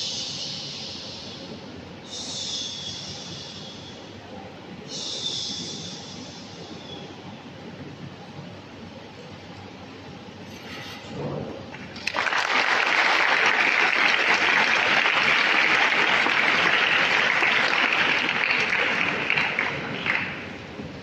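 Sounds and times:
audience applauding: 11.7s - 20.9s.

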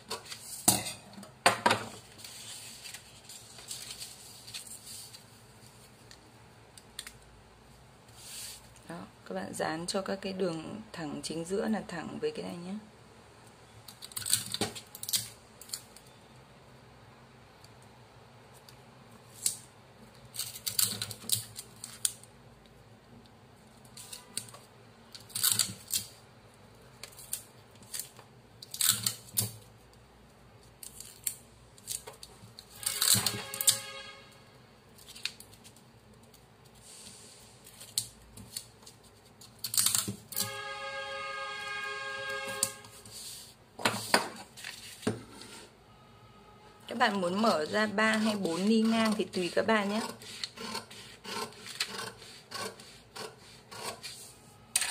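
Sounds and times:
paper rustling and crinkling: 2.0s - 6.1s, 43.0s - 45.1s.

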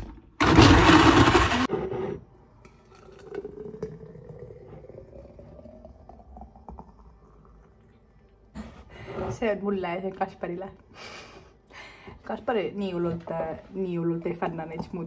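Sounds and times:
blender running: 0.4s - 1.7s
smoothie pouring into a glass: 2.4s - 8.3s.

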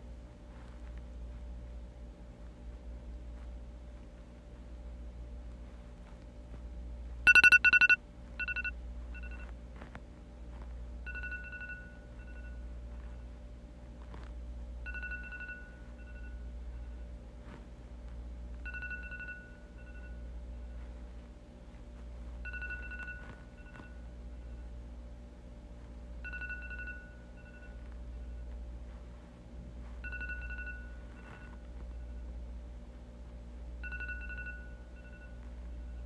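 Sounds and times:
phone alarm beeping: 7.3s - 9.5s, 11.1s - 12.6s, 22.4s - 24.1s, 26.2s - 28.4s, 30.0s - 32.3s, 33.8s - 36.0s.

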